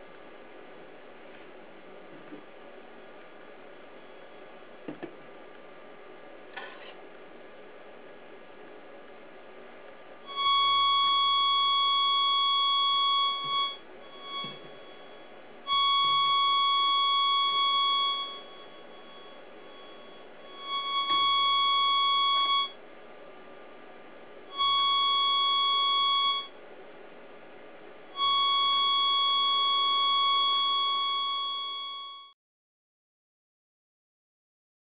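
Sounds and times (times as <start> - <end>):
steady loudspeaker tone: 10.2 - 22.8.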